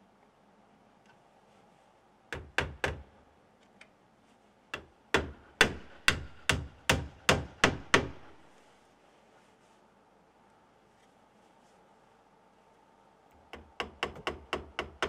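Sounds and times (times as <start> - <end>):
hammer nailing wooden shingles: 2.4 - 3.1, 4.8 - 8.5, 13.5 - 15.0.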